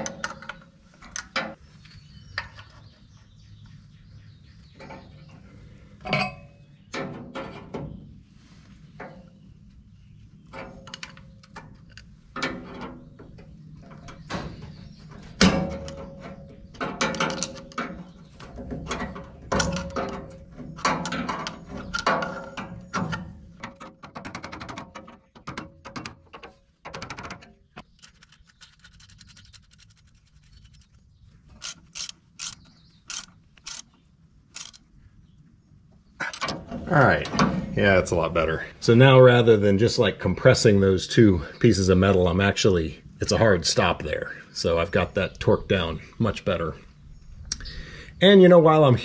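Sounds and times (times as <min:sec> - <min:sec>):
socket ratchet clicking: 0:31.6 - 0:33.9, 0:34.5 - 0:34.9.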